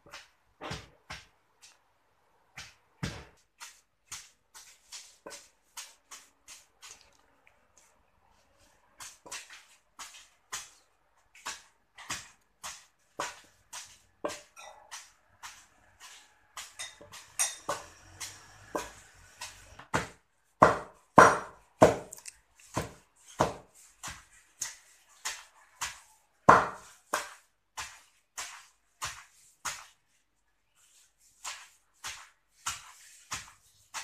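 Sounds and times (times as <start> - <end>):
pestle pounding in wooden mortar: 2.5 - 7.2, 9.0 - 30.0.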